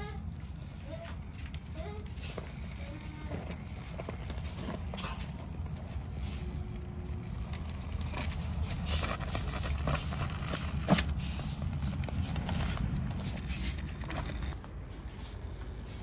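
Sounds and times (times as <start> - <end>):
remote control car rumbling: 6.7 - 14.8.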